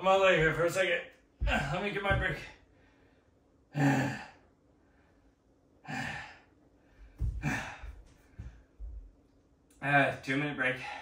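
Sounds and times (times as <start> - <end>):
man breathing hard and sighing: 2.6 - 5.2, 5.8 - 8.6.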